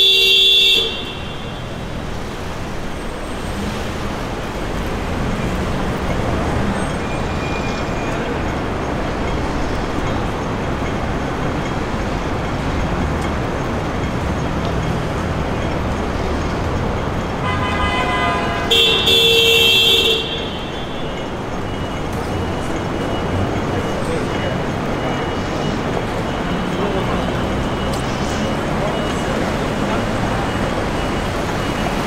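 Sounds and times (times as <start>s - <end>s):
vehicle horn: 0.0s - 1.8s, 17.4s - 21.0s
city street traffic: 0.0s - 32.0s.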